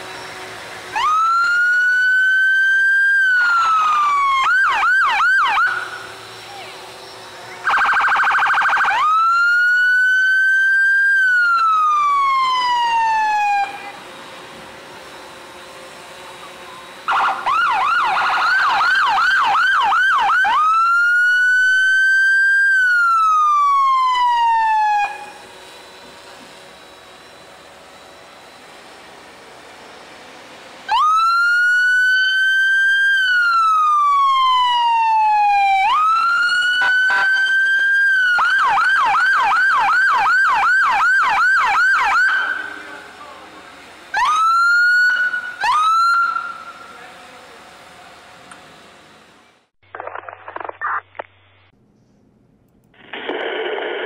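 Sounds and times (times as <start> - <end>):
siren buzzing blast: 0.0 - 14.3, 15.1 - 29.0, 30.8 - 43.1, 44.0 - 47.0
police siren wailing: 0.3 - 6.8, 7.4 - 14.4, 16.0 - 28.8, 30.8 - 47.2
police siren yelp: 0.8 - 6.8, 7.5 - 14.1, 16.2 - 25.8, 30.9 - 47.1.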